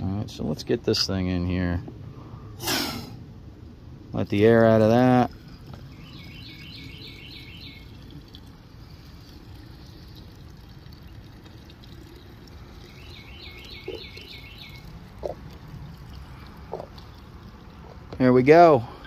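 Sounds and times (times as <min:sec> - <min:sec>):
fuel pouring into tank: 0:04.2 - 0:19.0
bird singing: 0:05.8 - 0:08.4, 0:12.7 - 0:15.4.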